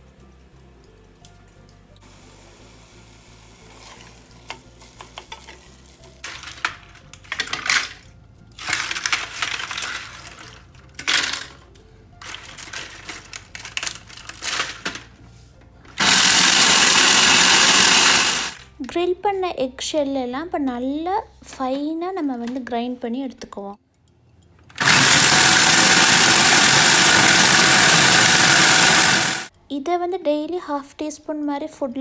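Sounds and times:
food processor motor whirring: 16.0s - 18.6s, 24.7s - 29.5s.

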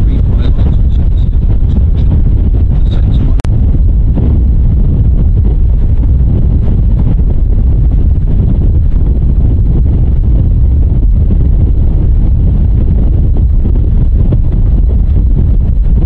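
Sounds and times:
wind buffeting the microphone: 0.0s - 16.0s.

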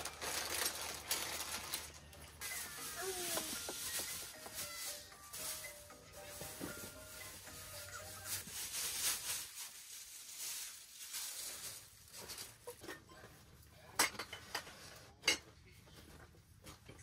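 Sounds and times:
soft rustling: 2.4s - 13.6s.

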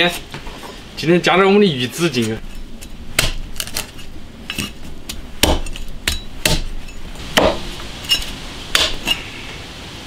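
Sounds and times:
cleaver chopping on wooden block: 3.2s - 3.9s, 4.5s - 6.8s, 7.4s - 7.7s, 8.7s - 9.2s.

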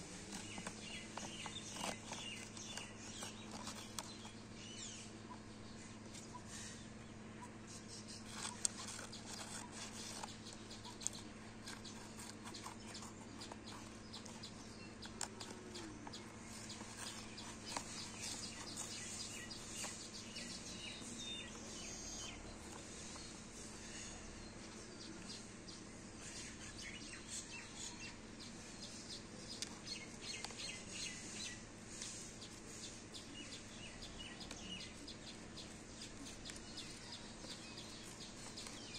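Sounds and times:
birds chirping faintly: 0.0s - 38.9s
scissors snipping paper: 0.2s - 4.4s, 8.1s - 20.5s.

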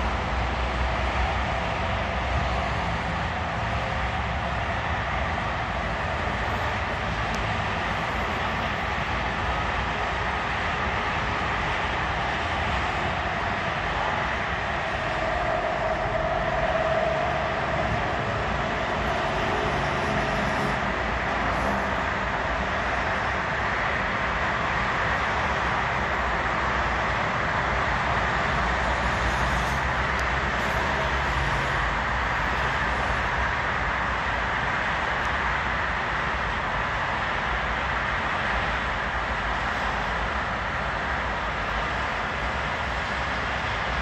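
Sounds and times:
distant city traffic: 0.0s - 44.0s.

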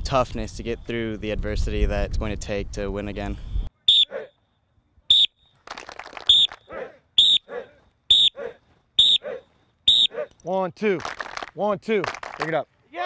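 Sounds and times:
sharp whistle blasts: 3.8s - 4.5s, 5.1s - 5.6s, 6.2s - 7.5s, 8.1s - 8.4s, 9.0s - 10.2s.

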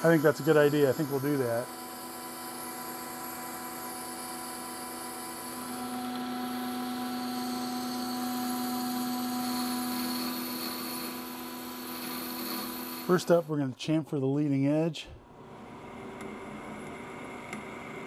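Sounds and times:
boring bar cutting metal: 0.0s - 13.5s
metal lathe humming: 0.0s - 13.5s.

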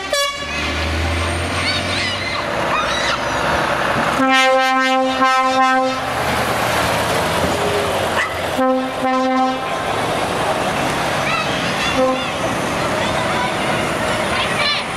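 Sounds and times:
truck air horn blasts: 0.0s - 0.5s, 4.2s - 6.1s, 8.6s - 9.7s, 11.8s - 12.4s
truck engines running: 0.0s - 14.9s.

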